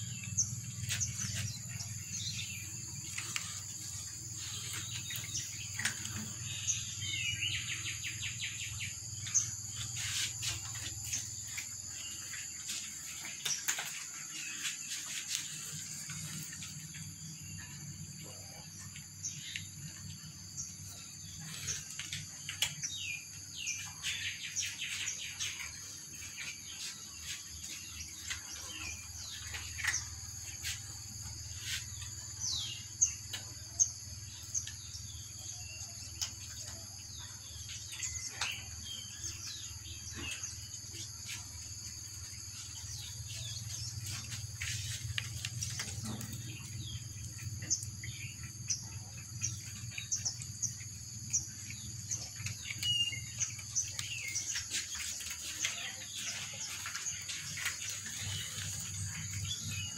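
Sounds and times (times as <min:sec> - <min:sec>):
bird chirps: 0:00.0 - 0:59.9
cats crunching dry kibble: 0:42.2 - 0:47.9.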